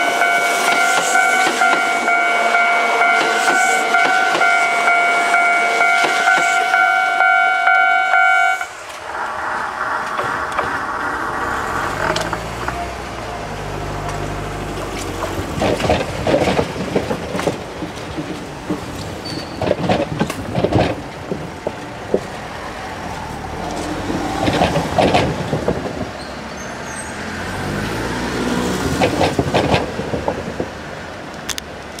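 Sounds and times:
level crossing alarm ringing: 0:00.0 - 0:08.7
train wheels clicking over rail joints: 0:00.5 - 0:02.2, 0:05.8 - 0:07.8, 0:08.7 - 0:28.0, 0:28.7 - 0:32.0.

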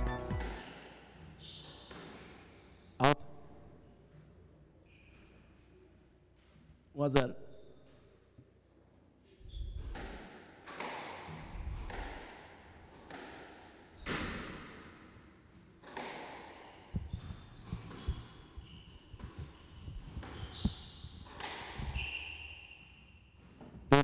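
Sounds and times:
shoe soles squeaking: 0:00.0 - 0:03.1, 0:04.8 - 0:05.9, 0:09.3 - 0:10.0, 0:16.6 - 0:24.0.

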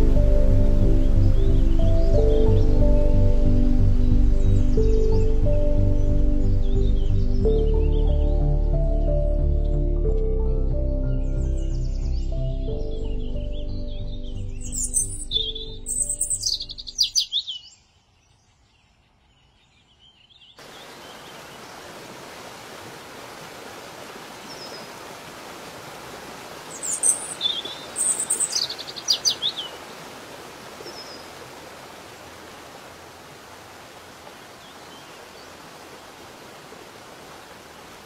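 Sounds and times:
songbirds chirping: 0:00.0 - 0:23.0, 0:24.0 - 0:38.0
waterfall rushing: 0:20.6 - 0:38.0.

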